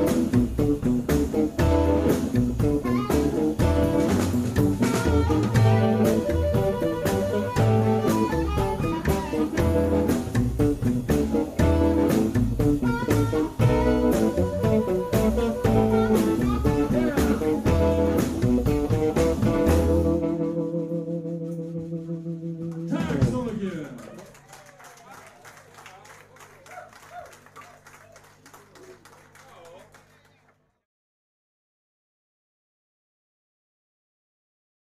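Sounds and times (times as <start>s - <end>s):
blues band playing: 0.0s - 23.7s
harmonica: 4.8s - 10.2s, 11.7s - 18.3s.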